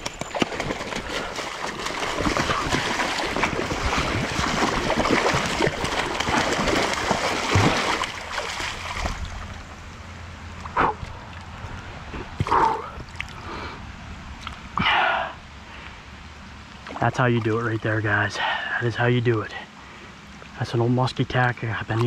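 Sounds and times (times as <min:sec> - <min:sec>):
fish thrashing and splashing: 0:00.0 - 0:09.8
running stream: 0:00.0 - 0:22.0.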